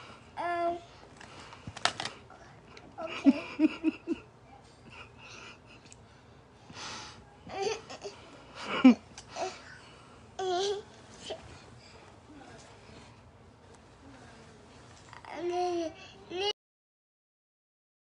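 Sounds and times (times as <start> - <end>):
person giggling: 3.0 - 4.3, 8.6 - 9.0.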